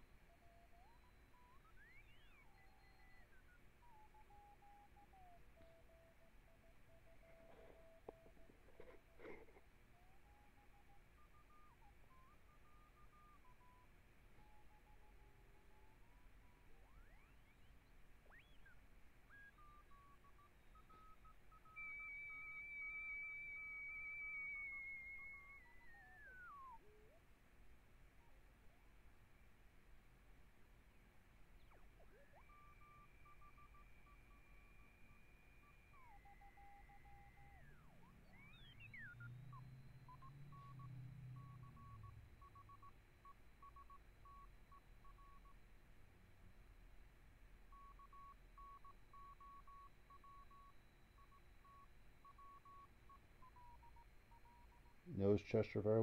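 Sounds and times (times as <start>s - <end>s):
steady radio whistle: 0.0s - 27.2s, 31.6s - 43.0s
radio whistles sweeping in pitch: 0.3s - 7.8s, 16.0s - 27.2s, 31.6s - 42.9s
morse code beat tone: 0.8s - 13.8s, 31.7s - 45.6s, 47.7s - 56.0s.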